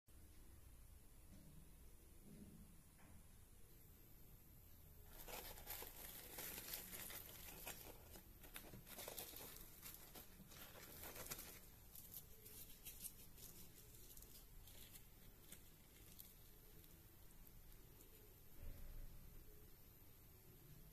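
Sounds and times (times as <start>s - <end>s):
crisp bread crackling and tearing: 5.1s - 18.2s.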